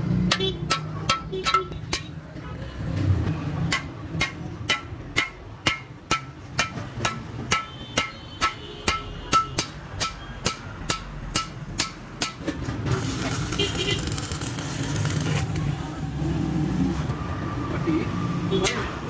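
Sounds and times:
hammer striking steel bar: 0.2s - 2.2s, 3.7s - 12.6s.

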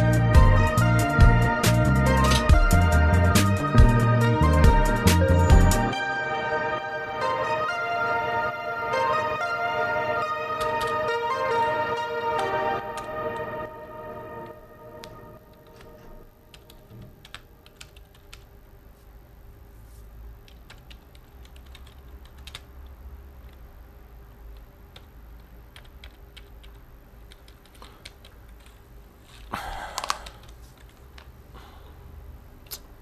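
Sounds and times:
low room hum: 0.0s - 33.0s
typing on computer keyboard: 15.0s - 18.5s, 20.4s - 23.6s, 24.6s - 28.8s.

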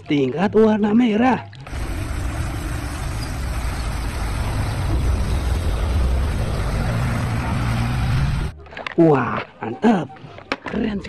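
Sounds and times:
road noise: 1.6s - 10.6s
bus engine rumble: 1.7s - 8.6s.

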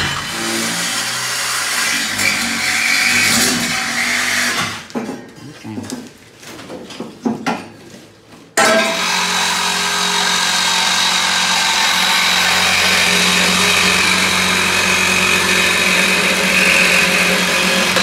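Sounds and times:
power saw cutting metal pipe: 0.0s - 4.9s, 8.6s - 18.0s.

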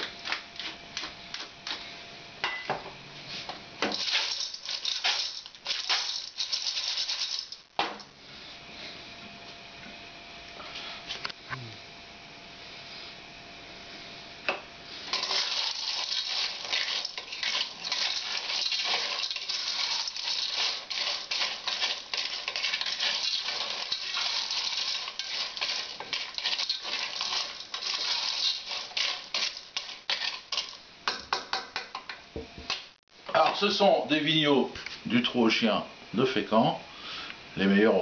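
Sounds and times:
shells rattling in a steel pot: 3.9s - 7.6s, 15.1s - 30.8s.

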